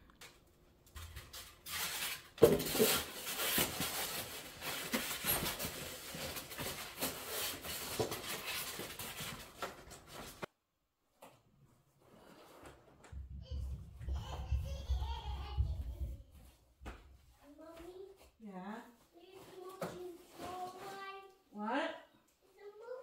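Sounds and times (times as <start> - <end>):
cardboard rustling and scraping: 1.0 - 10.5.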